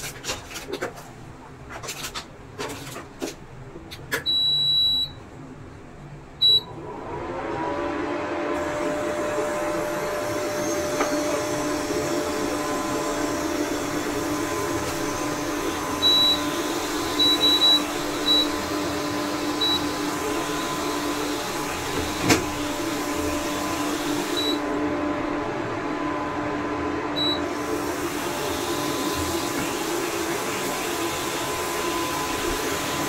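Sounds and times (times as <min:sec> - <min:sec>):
cooktop fan humming: 0:00.0 - 0:33.0
short high beeps: 0:06.4 - 0:06.7.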